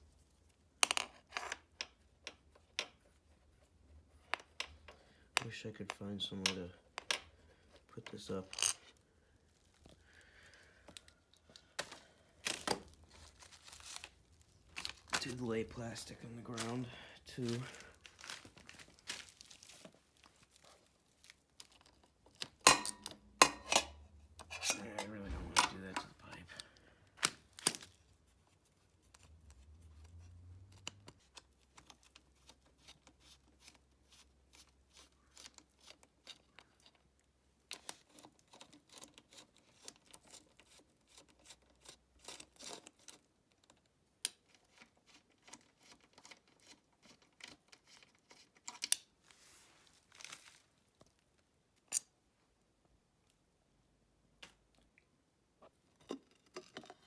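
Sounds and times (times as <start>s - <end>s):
plastic sheeting crinkling: 12.4s - 21.6s, 49.2s - 50.9s.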